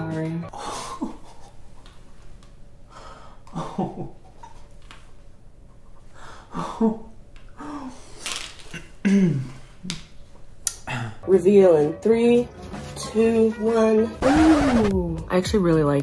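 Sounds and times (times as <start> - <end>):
man breathing: 2.8 - 3.5, 6.0 - 6.9.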